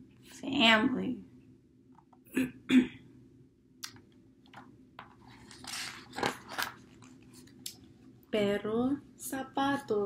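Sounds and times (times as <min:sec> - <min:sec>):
book page turning: 0:04.5 - 0:07.6.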